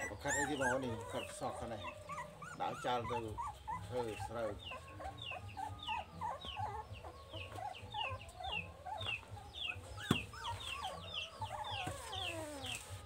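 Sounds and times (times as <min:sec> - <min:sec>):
chicks peeping: 0:00.0 - 0:13.0.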